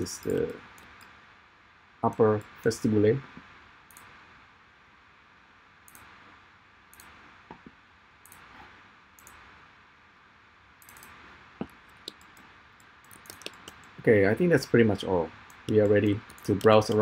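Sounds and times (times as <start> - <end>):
low steady hiss: 0.0 - 17.0
computer mouse clicks: 0.1 - 1.2, 3.9 - 4.2, 5.9 - 6.2, 6.9 - 9.5, 10.8 - 14.0, 15.4 - 17.0.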